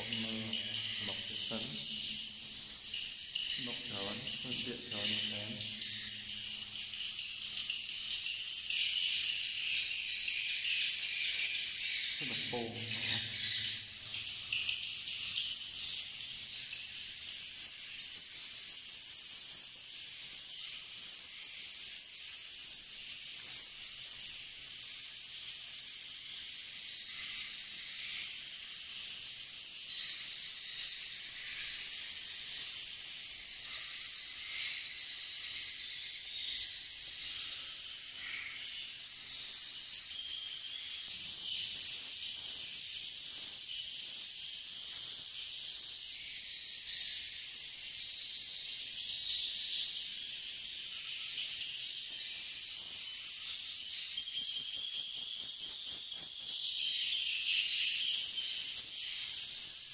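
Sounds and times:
swiftlets twittering: 0.0s - 2.5s, 3.5s - 6.2s.

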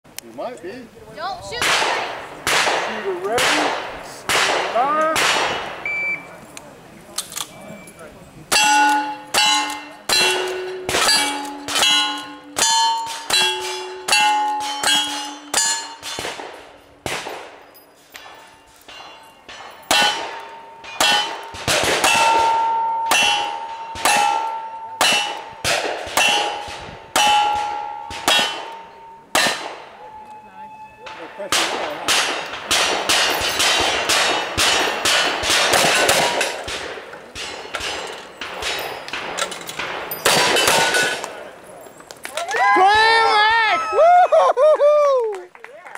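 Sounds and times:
pistol shots: 1.6s - 5.9s, 8.5s - 17.6s, 18.2s - 30.0s, 31.1s - 41.4s
steel target ringing: 8.5s - 31.2s.

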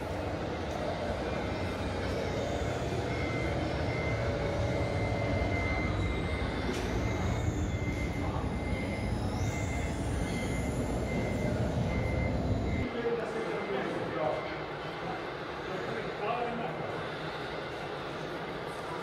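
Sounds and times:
electric motor whine: 0.0s - 12.8s
steady background noise: 0.0s - 19.0s.

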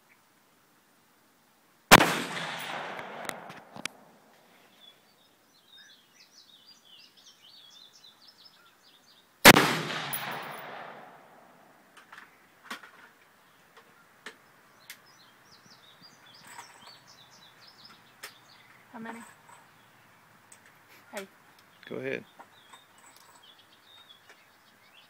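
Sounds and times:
rifle shot: 1.9s - 4.1s, 9.4s - 11.6s.

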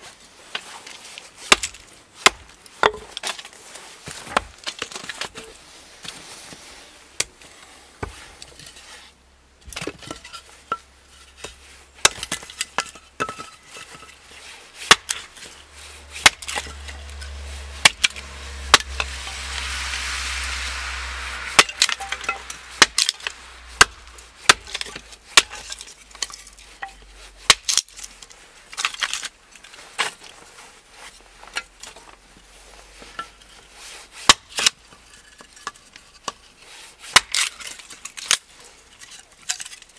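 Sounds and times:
hatchet splitting kindling: 12.0s - 19.5s, 21.6s - 26.5s
rushing noise with low rumble: 14.2s - 27.1s.

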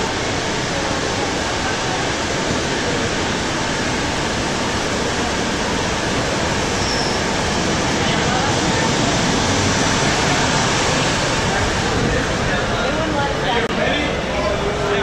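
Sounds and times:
loud rushing noise: 0.0s - 15.0s.

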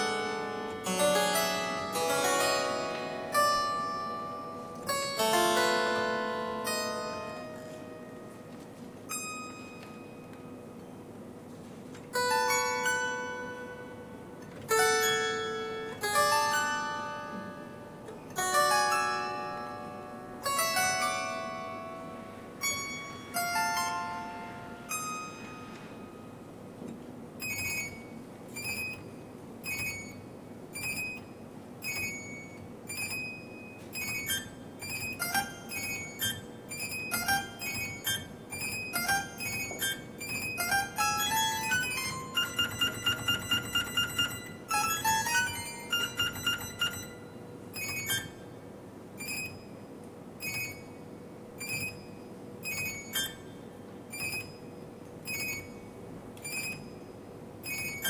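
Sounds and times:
solo harpsichord playing: 0.0s - 8.3s, 12.1s - 25.9s, 34.0s - 48.4s.

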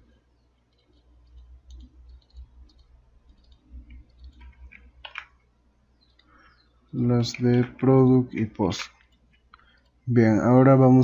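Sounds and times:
keyboard and mouse clicks: 0.6s - 5.4s.

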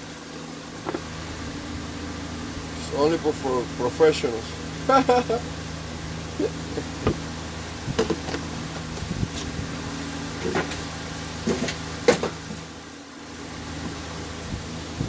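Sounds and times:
steady low hum: 0.0s - 15.0s
fuel funnel knocks and clicks: 7.9s - 8.4s.

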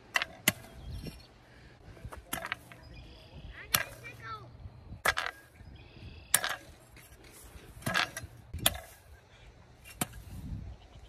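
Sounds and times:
hoe chopping into dry soil: 7.7s - 9.1s, 9.8s - 10.5s.

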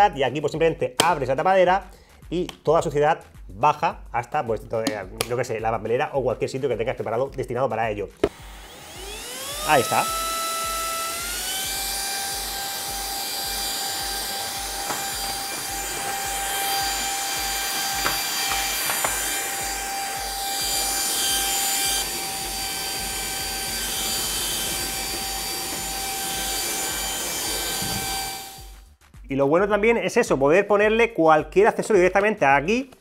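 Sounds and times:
vacuum cleaner running: 8.2s - 28.8s.

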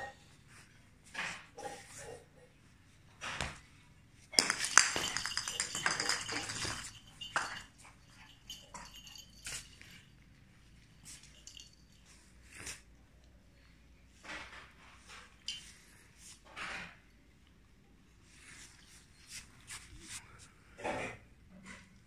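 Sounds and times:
rapid metallic clattering: 4.4s - 7.6s
scattered clicks and taps: 4.4s - 7.7s.

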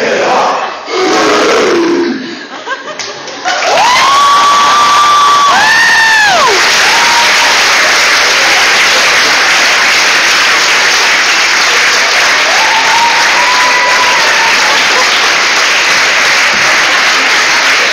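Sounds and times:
audience clapping: 2.9s - 17.9s.

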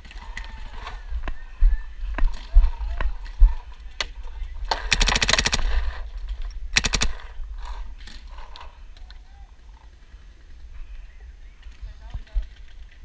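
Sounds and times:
paintball marker firing: 4.7s - 5.9s, 6.8s - 7.3s.

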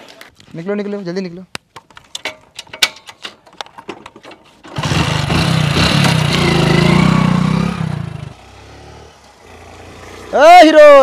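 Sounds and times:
motorcycle engine starting and revving: 4.6s - 10.9s.

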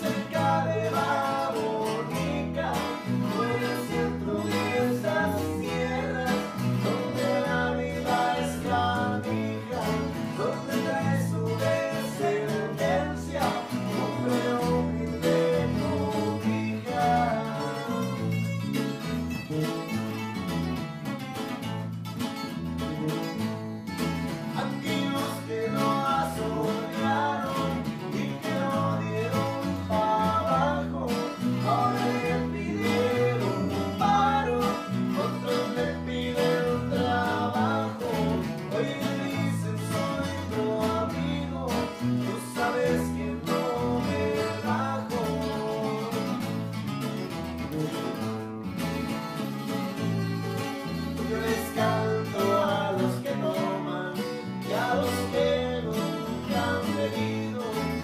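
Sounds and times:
bass line: 0.0s - 58.0s
strummed guitars: 0.0s - 58.0s
string melody line: 48.8s - 52.7s.

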